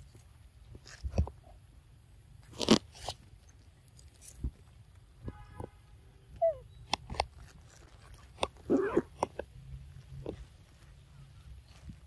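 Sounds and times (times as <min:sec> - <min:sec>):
monkeys biting and crunching fruit: 0:02.4 - 0:04.5, 0:06.4 - 0:10.6.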